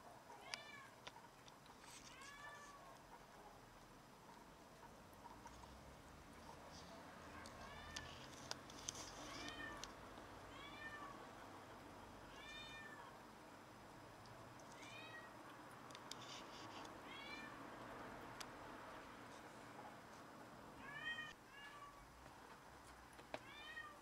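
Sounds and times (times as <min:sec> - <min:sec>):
cat meowing: 0:02.0 - 0:02.9, 0:07.4 - 0:08.2, 0:09.1 - 0:09.8, 0:10.5 - 0:11.2, 0:12.3 - 0:13.2, 0:14.8 - 0:15.4, 0:17.0 - 0:17.6, 0:20.8 - 0:22.0, 0:23.4 - 0:24.0.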